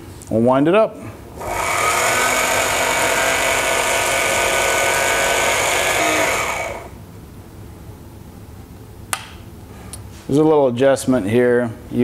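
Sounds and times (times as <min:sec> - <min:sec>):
sewing machine motor whine: 0:01.4 - 0:07.0.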